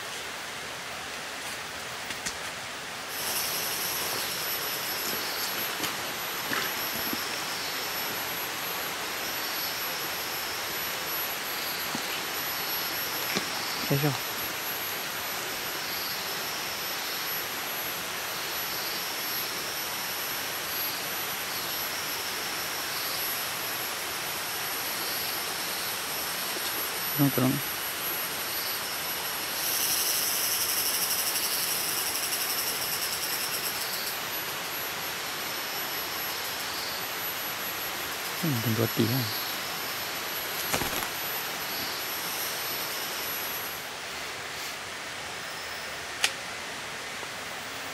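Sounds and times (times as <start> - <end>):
constant hiss: 0.0 - 47.9
insects buzzing: 0.0 - 47.9
rushing forest ambience: 0.0 - 47.9
soft footfalls on forest floor: 40.6 - 41.2.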